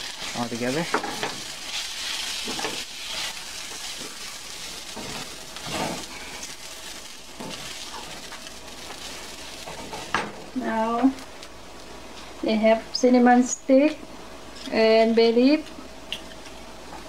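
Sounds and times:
food sizzling in a skillet: 0.0 - 11.4.

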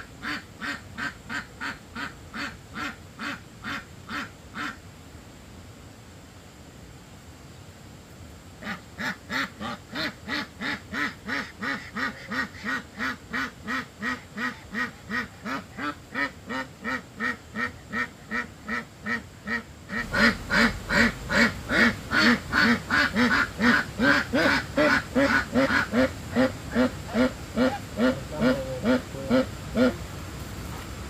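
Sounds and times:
duck quacking: 8.6 - 30.0.

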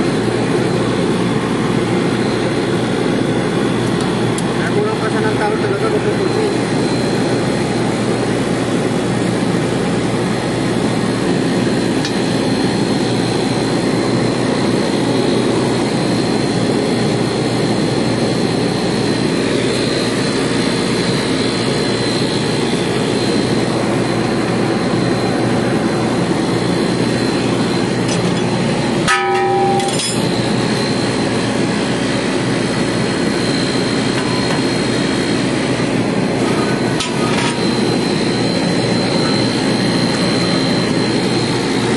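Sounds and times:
loud machinery drone: 0.0 - 41.9
thin high whine: 10.8 - 41.9
short ringing knock: 29.1 - 30.2.

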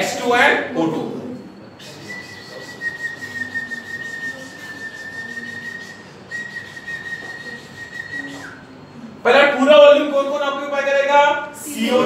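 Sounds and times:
high whistle-like tone: 1.6 - 8.8.

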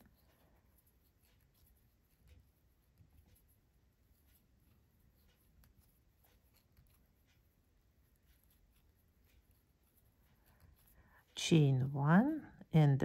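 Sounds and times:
crochet hook ticks and scratching: 0.0 - 13.0.

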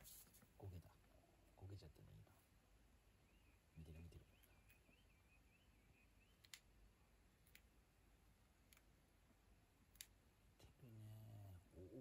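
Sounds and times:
faint sharp clicks: 6.4 - 6.7, 9.9 - 10.2.

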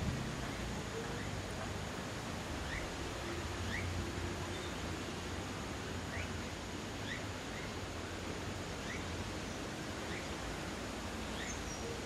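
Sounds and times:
outdoor background hiss: 0.0 - 12.0
bird chirping: 0.4 - 1.4, 2.6 - 4.9, 7.0 - 7.8, 8.8 - 10.4, 11.2 - 12.0.

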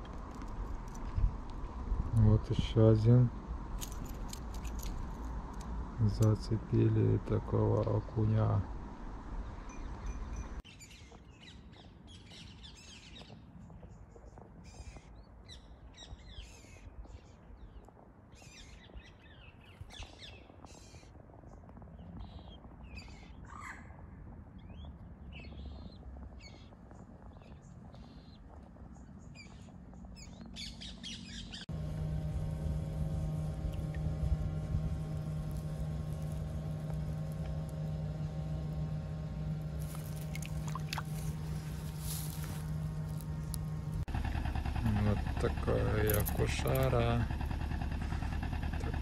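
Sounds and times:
low engine-like hum: 0.0 - 10.7, 22.0 - 49.0.

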